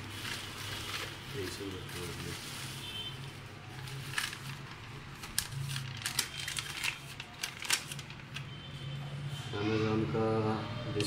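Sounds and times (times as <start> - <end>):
paper and plastic crinkling: 0.0 - 8.6.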